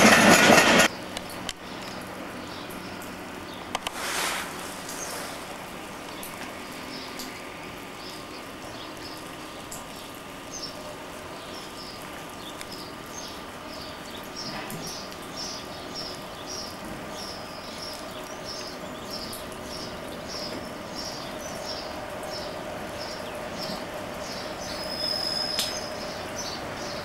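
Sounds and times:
diesel locomotive engine hum: 0:00.0 - 0:27.0.

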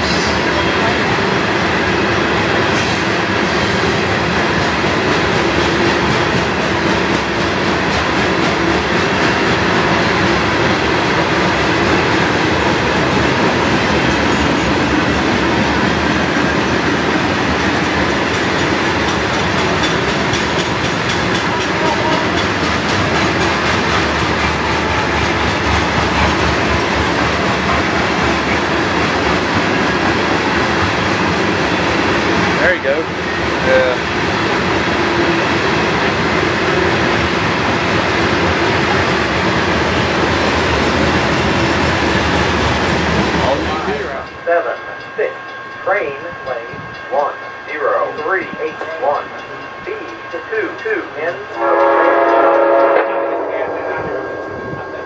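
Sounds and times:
freight train rolling past: 0:00.0 - 0:55.0
steel wheels clicking over rail joints: 0:02.8 - 0:30.1.

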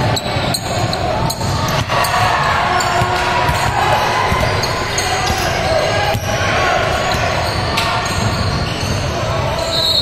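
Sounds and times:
basketball bouncing on gym floor: 0:06.0 - 0:06.4.

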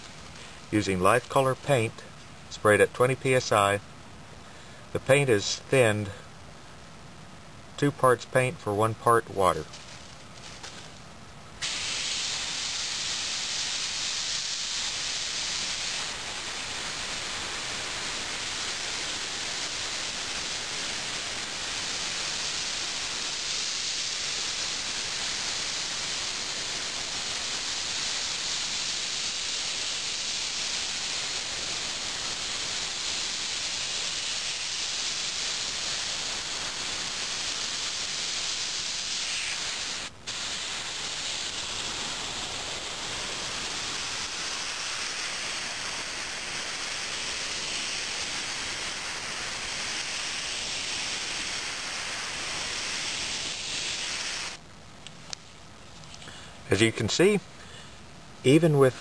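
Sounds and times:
airbrush spraying hiss: 0:00.0 - 0:02.1, 0:11.6 - 0:54.6.

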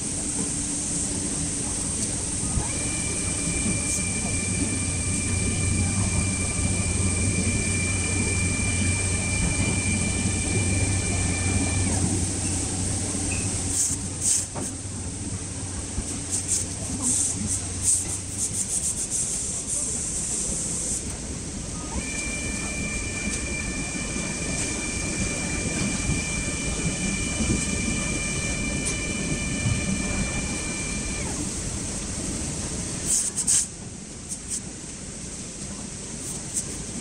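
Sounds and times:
printer motor whine: 0:02.5 - 0:13.2, 0:21.8 - 0:31.5.

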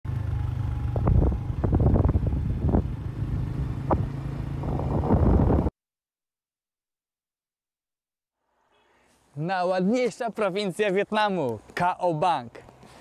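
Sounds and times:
engine running with low hum: 0:00.1 - 0:05.7.

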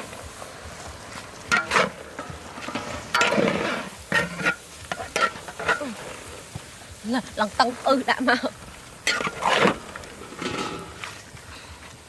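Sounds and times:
food sizzling in a pan: 0:00.0 - 0:12.0
utensil scraping metal pan: 0:01.5 - 0:06.3, 0:09.0 - 0:11.2.

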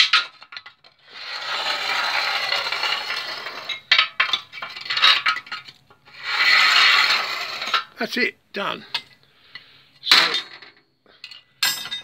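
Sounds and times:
metal rod scraping stove tube: 0:00.0 - 0:08.0.

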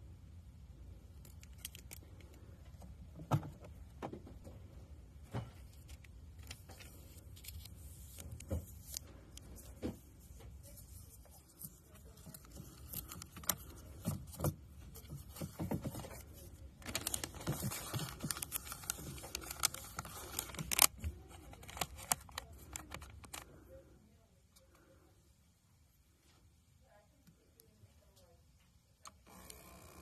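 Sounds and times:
paper scraping and rustling: 0:05.5 - 0:23.4
paper roll handling clicks and taps: 0:16.8 - 0:23.4.

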